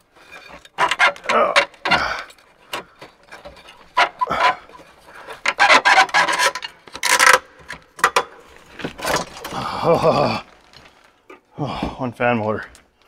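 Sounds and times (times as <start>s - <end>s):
metal parts scraping and grinding: 0.0s - 9.6s.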